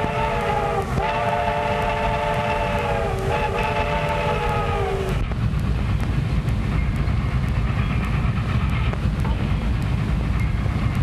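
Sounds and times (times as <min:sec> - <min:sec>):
steam locomotive whistle chord: 0:00.0 - 0:05.0
train rumbling on rails: 0:00.0 - 0:11.0.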